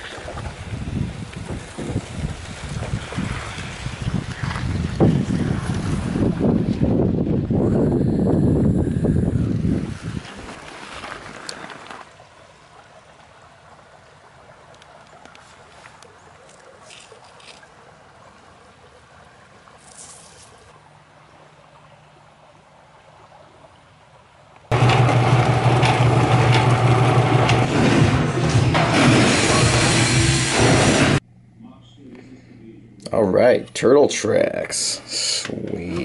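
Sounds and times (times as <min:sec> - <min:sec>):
rock tumbler motor hum: 0:24.7 - 0:31.2.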